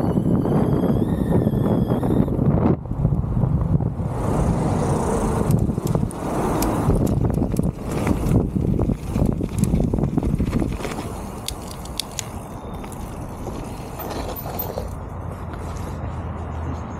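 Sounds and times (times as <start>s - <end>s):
wind on microphone: 0.0s - 11.8s
bike tyre noise: 3.1s - 16.0s.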